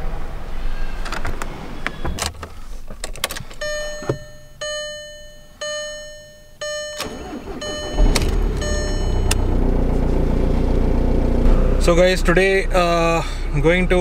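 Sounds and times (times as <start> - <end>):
car engine cranking and starting: 0.0 - 4.8, 5.6 - 14.0
car warning chime dinging: 3.5 - 10.4.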